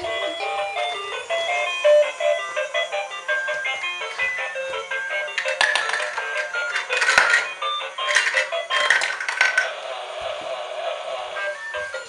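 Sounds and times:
plastic clicks and clatters: 5.4 - 9.7.

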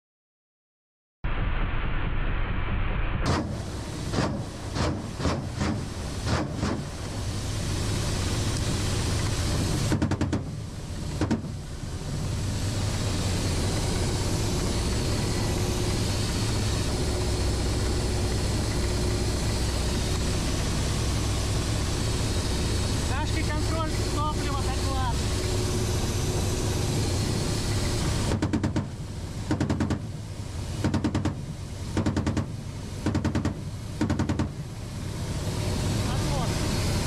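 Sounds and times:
helicopter engine and rotor drone: 3.3 - 37.0.

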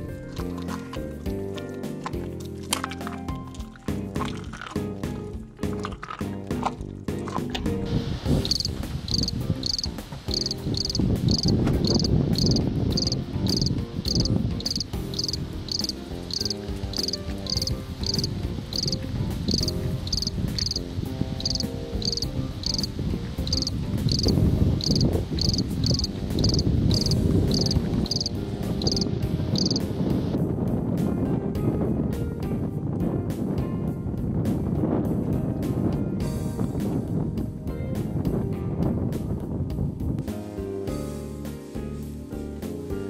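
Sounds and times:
insect chirping: 8.4 - 20.8, 21.4 - 22.9, 23.5 - 29.9.

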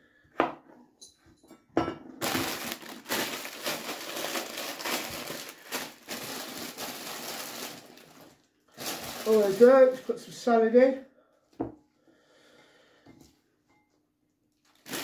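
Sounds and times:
plastic bag crinkling: 2.2 - 10.5, 14.6 - 15.0.

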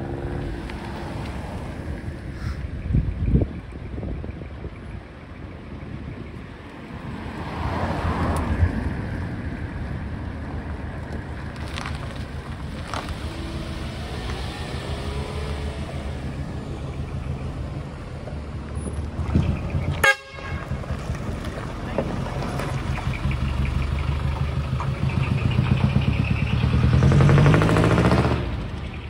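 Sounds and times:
vehicles driving over gravel: 0.0 - 2.7, 6.2 - 29.0
truck diesel engine rumble: 8.7 - 29.0.

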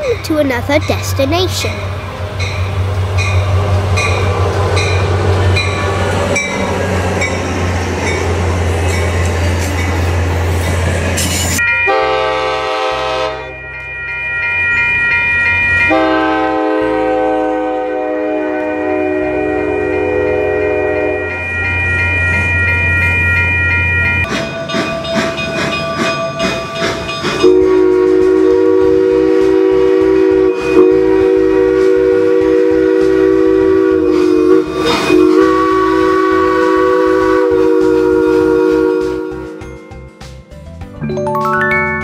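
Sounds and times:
steam locomotive chime whistle: 11.3 - 39.9
train horn chord: 11.8 - 13.7, 15.9 - 21.6, 27.4 - 39.6.

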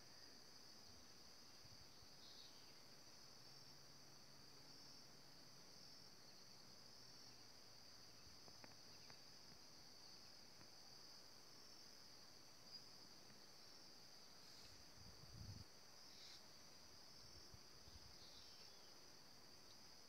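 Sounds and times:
insects chirring: 0.0 - 20.0
faint ticks: 8.3 - 9.7, 19.6 - 19.9.

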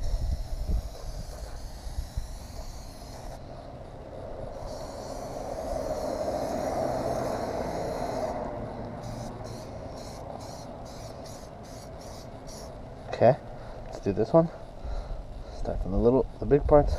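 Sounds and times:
aerosol can spraying: 0.0 - 3.4, 4.6 - 12.8.

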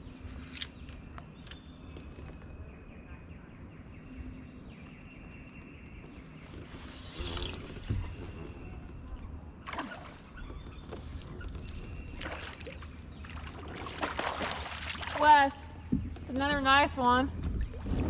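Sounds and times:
fish thrashing and splashing: 12.1 - 15.2.

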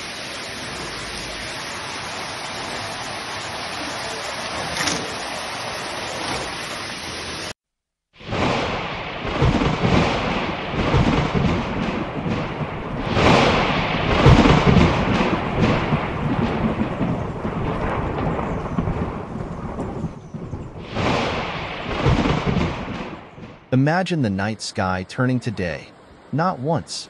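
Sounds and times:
steady rain: 0.0 - 7.6, 8.3 - 27.0
thunder rumbling: 8.2 - 25.3.

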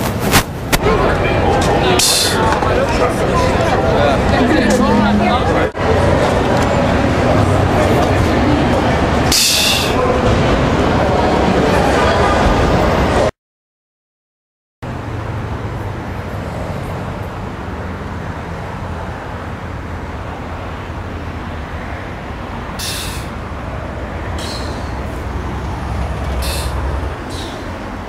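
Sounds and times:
rumble of passing vehicles: 0.0 - 13.3, 14.8 - 28.0
short sharp hisses: 9.3 - 10.0, 22.8 - 23.4, 24.4 - 25.0, 26.4 - 27.6.

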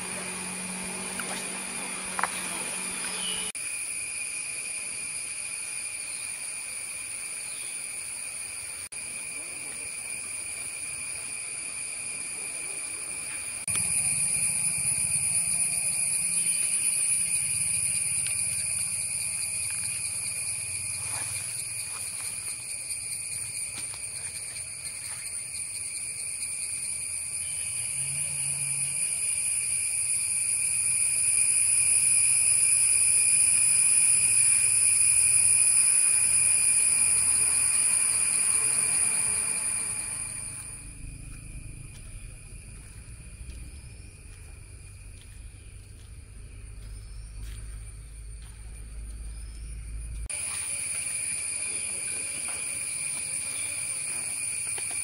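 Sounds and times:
high-pitched insect drone: 0.0 - 55.0
low rumble: 40.2 - 50.3.

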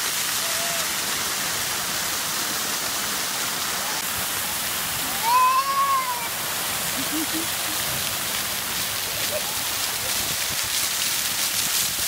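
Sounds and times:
fountain jets spraying on concrete: 0.0 - 12.0
child squealing: 5.0 - 6.4.

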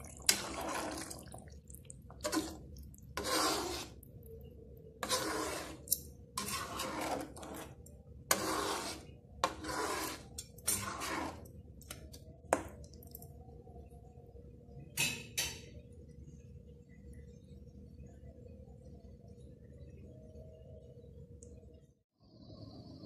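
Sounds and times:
spatula scraping a wok: 0.0 - 1.4, 2.2 - 4.1, 5.0 - 12.8.

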